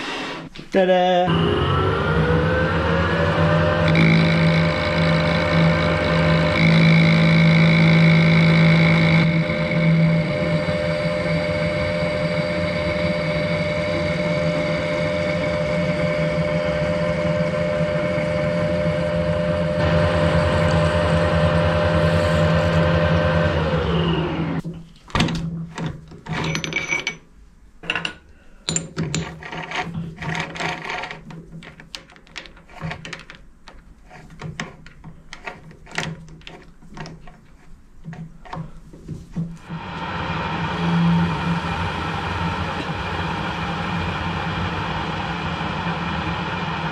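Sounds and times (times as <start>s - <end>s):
metal lathe whining: 1.3s - 24.6s
metallic clicks and knocks: 27.8s - 38.8s.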